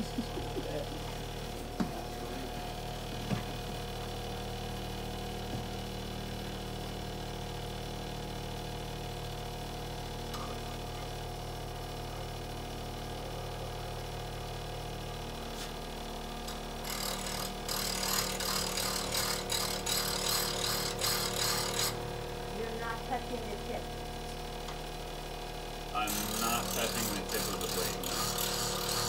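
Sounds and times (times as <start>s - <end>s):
bench grinder motor hum: 0.0s - 29.0s
chisel grinding on wheel: 16.8s - 22.0s, 26.0s - 29.0s.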